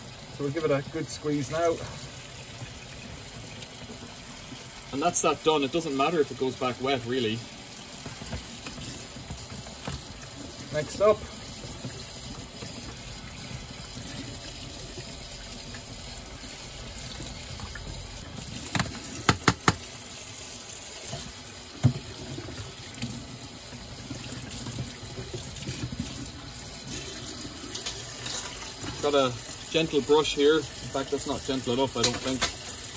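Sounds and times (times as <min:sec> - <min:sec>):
tap running into a steel sink: 0:18.7 - 0:19.8.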